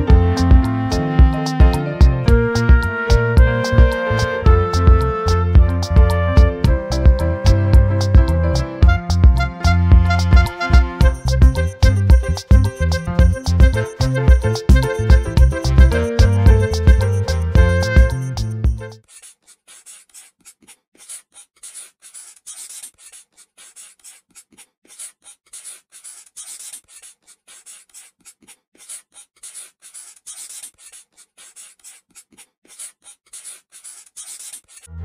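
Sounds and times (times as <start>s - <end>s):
marker rubbing on paper: 9.4s - 34.9s.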